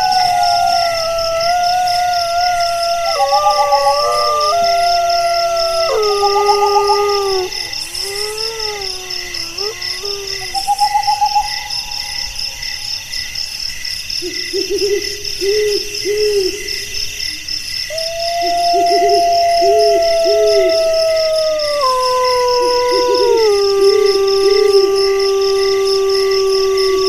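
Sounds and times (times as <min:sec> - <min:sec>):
low hooting notes: 0:00.0 - 0:12.6
wavering howls: 0:00.0 - 0:13.6, 0:17.9 - 0:27.0
insects chirping: 0:00.0 - 0:27.0.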